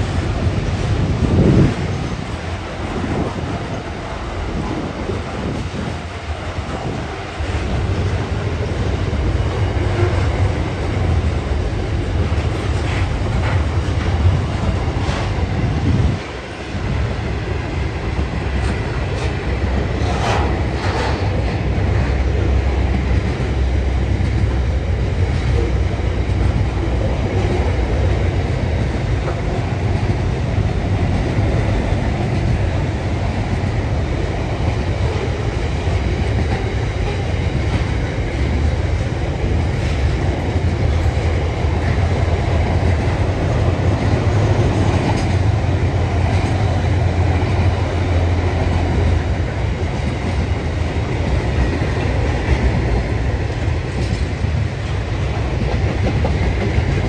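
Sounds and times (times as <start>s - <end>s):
freight train wheels rumbling on rail: 0.0s - 57.0s
train wheel screeches and knocks: 18.6s - 22.2s.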